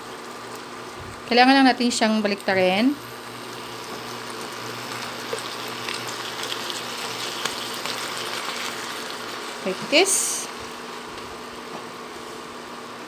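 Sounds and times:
meat sizzling in a pan: 3.1s - 11.0s
crackles and pops: 3.4s - 9.2s.

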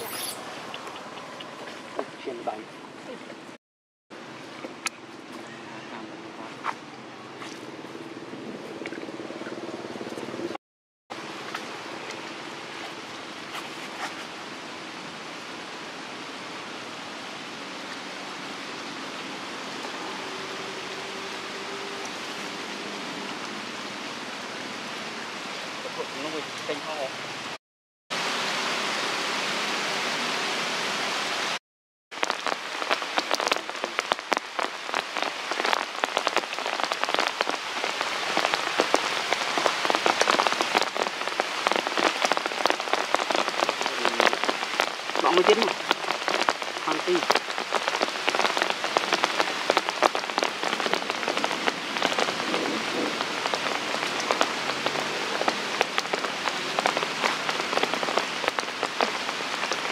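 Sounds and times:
rain pattering: 11.2s - 27.6s, 31.1s - 59.9s.

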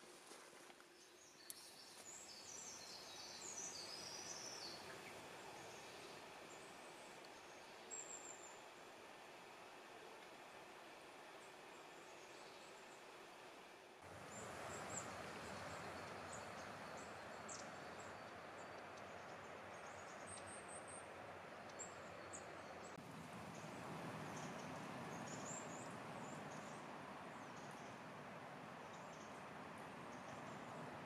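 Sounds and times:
small birds chirping: 0.9s - 8.7s, 14.2s - 28.1s.

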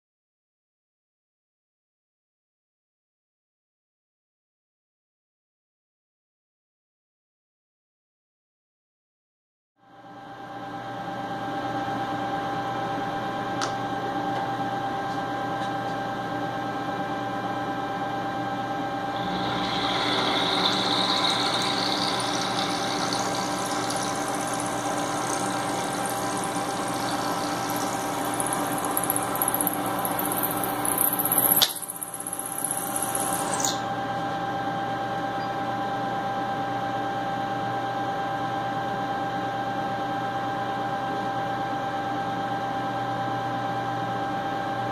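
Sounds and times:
milling machine hum: 19.1s - 33.8s
end mill cutting metal: 19.2s - 33.6s.

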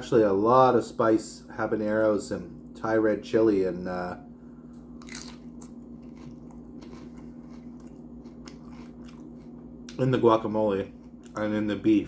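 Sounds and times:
low electrical hum: 0.0s - 12.0s
chewing crunchy chips: 5.0s - 10.2s.

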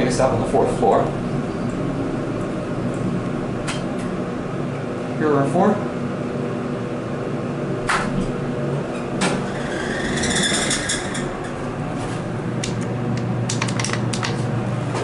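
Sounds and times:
steady low hum: 0.0s - 15.0s
elevator doors sliding open: 7.7s - 12.6s.

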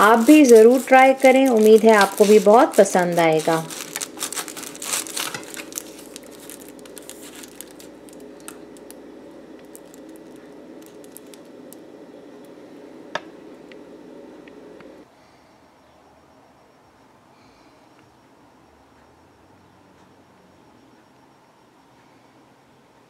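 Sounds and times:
knife cutting through foil: 0.0s - 8.6s
aluminium foil crinkling: 0.0s - 12.6s
steady low hum: 0.0s - 23.0s.

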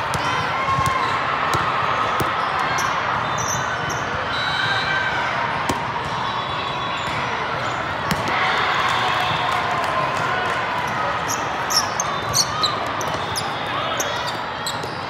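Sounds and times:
crowded hall din: 0.0s - 15.0s
volleyball hits: 8.0s - 8.4s.

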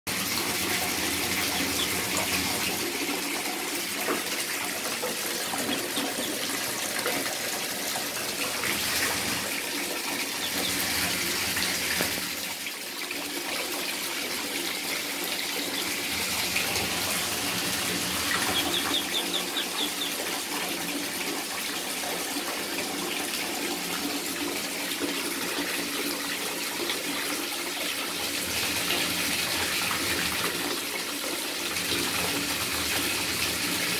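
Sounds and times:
water running into bathtub: 0.1s - 33.9s
ducklings peeping: 0.2s - 2.8s, 5.2s - 6.8s, 10.2s - 12.2s, 15.2s - 20.4s.

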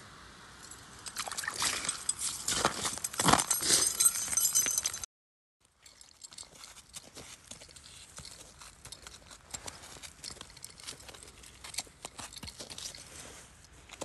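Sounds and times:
packed snow crunching: 1.4s - 4.3s.

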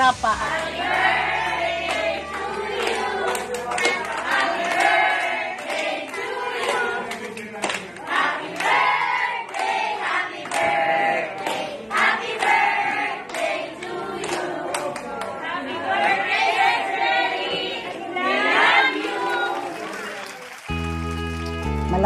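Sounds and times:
women and children singing: 0.0s - 7.2s, 8.0s - 19.8s
hands clapping: 0.5s - 8.8s, 9.4s - 10.8s, 11.4s - 12.6s, 13.2s - 15.4s, 19.0s - 22.0s.

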